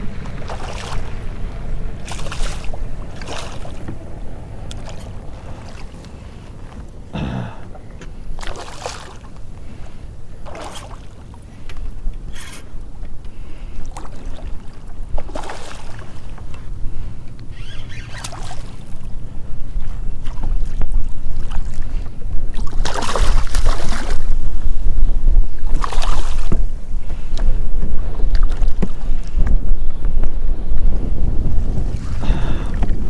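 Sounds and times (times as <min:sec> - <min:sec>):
wind buffeting microphone: 0:00.0 - 0:33.0
fish splashing in water: 0:00.1 - 0:01.4, 0:02.0 - 0:04.0, 0:04.6 - 0:06.4, 0:08.4 - 0:09.3, 0:10.4 - 0:11.2, 0:13.9 - 0:16.2, 0:18.0 - 0:18.9, 0:22.6 - 0:24.3, 0:25.6 - 0:26.6.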